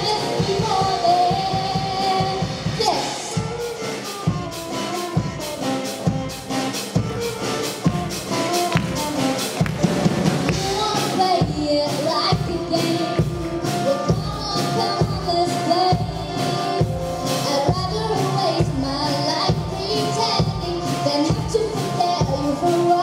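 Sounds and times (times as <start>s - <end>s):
girl singing into microphone: 0.0s - 4.9s, 10.5s - 23.0s
live rock band playing: 0.0s - 23.0s.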